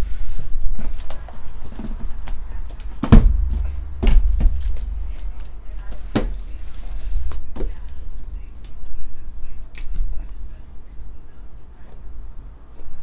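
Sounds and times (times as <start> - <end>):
boxes knocking and scuffing: 0.8 - 8.8.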